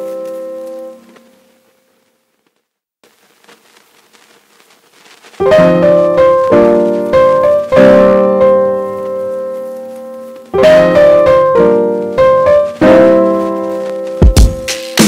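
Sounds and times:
piano chords: 5.4 - 15.0.

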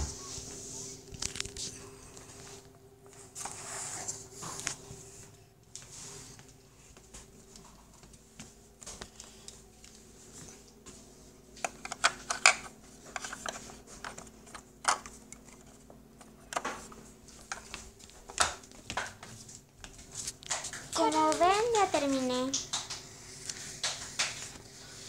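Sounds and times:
crayons clicking in plastic case: 20.4 - 24.5.

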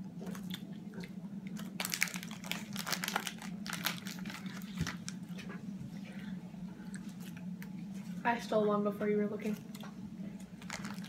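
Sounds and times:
steady low hum: 0.0 - 11.0
snack packet crinkling: 1.5 - 5.2, 10.6 - 11.0.

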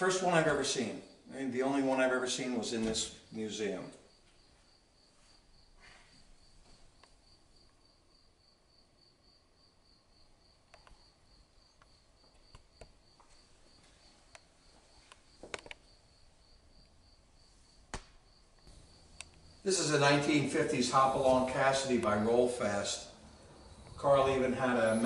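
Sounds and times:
faint clicks: 18.6 - 19.4.

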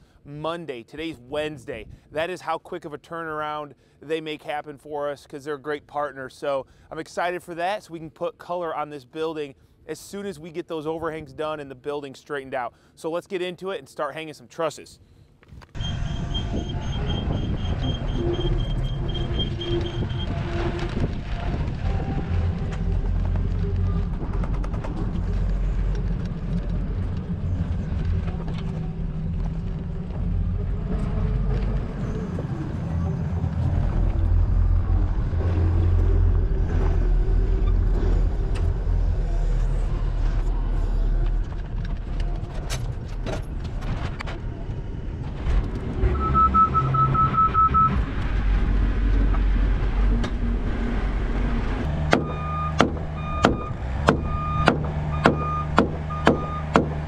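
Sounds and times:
skid loader engine under load: 15.8 - 43.8, 44.4 - 57.0
high beeps: 46.1 - 48.0, 52.2 - 56.8
sharp hammer strikes: 52.0 - 57.0.

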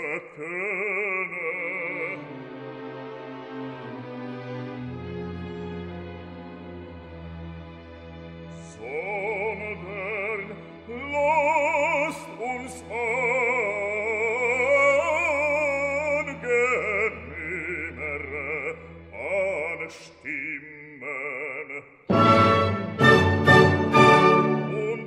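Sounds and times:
operatic singing: 0.0 - 4.6, 8.5 - 25.0
steady musical accompaniment: 0.0 - 20.3, 22.1 - 25.0.

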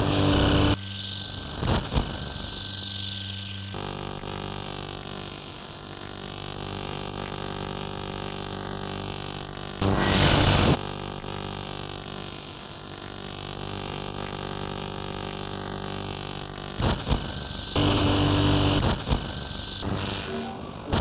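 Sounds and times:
electronic droning music: 0.0 - 21.0
harsh noise bursts: 16.7 - 21.0.

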